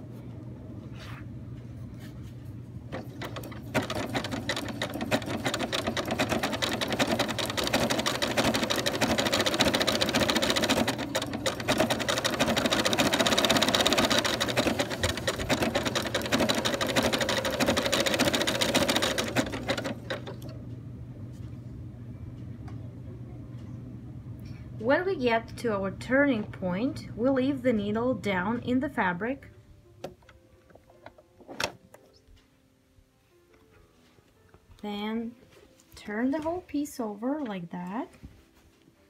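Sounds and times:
sewing machine stitching: 2.9s - 20.5s.

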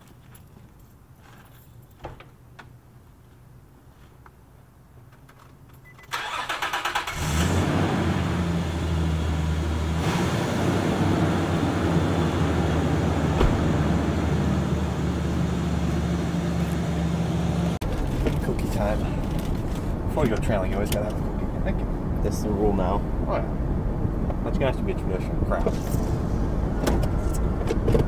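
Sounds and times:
car engine idling: 10.8s - 17.9s.

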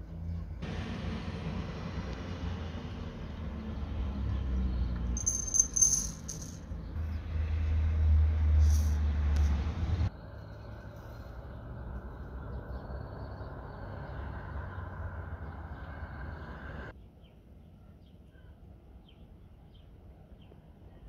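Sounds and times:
salt crystals rattling into glass bowl: 5.2s - 6.6s.

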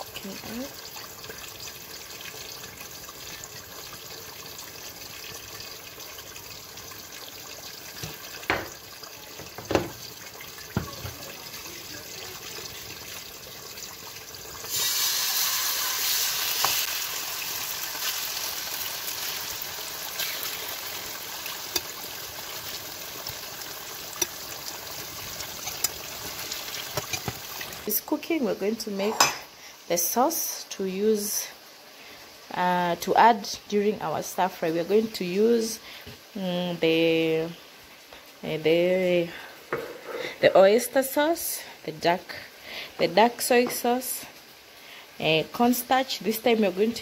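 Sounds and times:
chicken sizzling in hot oil: 0.0s - 31.4s.

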